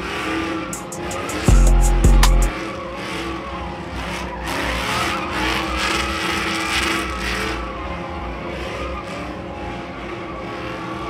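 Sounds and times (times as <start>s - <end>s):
truck engine at high revs: 0.0s - 11.0s
tyres squealing on asphalt: 2.7s - 11.0s.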